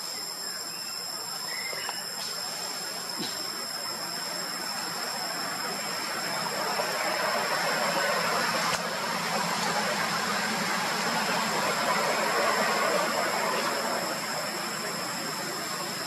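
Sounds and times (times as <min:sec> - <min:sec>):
high-pitched whine: 0:03.2 - 0:16.0.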